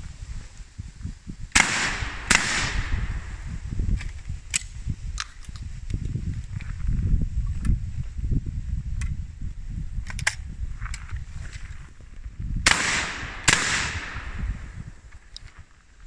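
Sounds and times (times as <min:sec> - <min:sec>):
shotgun shots with echo: 0:01.6 - 0:03.3, 0:12.6 - 0:14.4.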